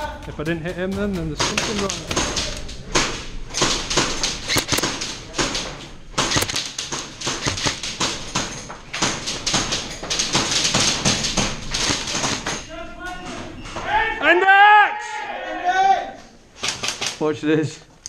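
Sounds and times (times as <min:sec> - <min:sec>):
footsteps: 0:00.0 - 0:14.0
knocks: 0:00.4 - 0:12.7
airsoft guns rapid clicking: 0:00.7 - 0:12.7, 0:16.6 - 0:17.3.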